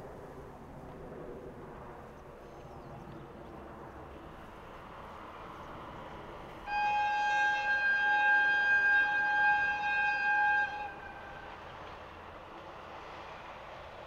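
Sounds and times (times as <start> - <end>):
low rail-running rumble: 0.0 - 14.0
train horn blast: 6.6 - 12.2.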